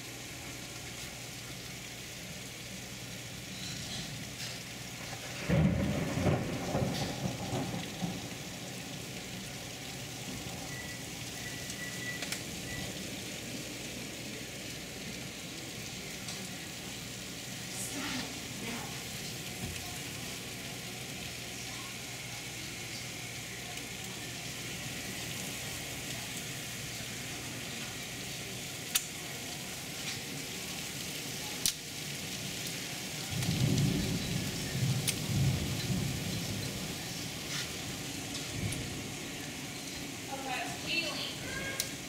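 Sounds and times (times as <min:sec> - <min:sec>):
heavy rain pouring: 0:00.0 - 0:42.0
thunder rumble: 0:04.8 - 0:14.7, 0:32.0 - 0:42.0.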